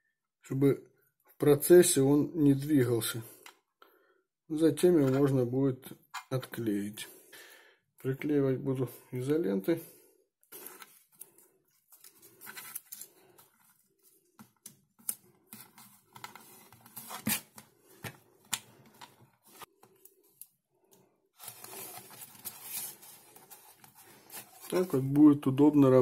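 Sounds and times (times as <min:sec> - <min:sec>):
tape rubbing rustle: 0:10.5 - 0:18.2, 0:21.4 - 0:25.0
tape crackling and snapping: 0:14.2 - 0:20.6.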